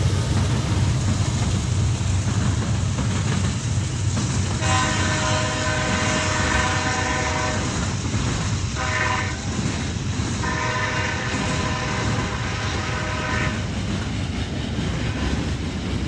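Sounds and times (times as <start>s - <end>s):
freight train cars rumbling: 0.0s - 16.0s
locomotive horn blasts: 4.6s - 7.7s, 8.8s - 9.5s, 10.4s - 13.7s.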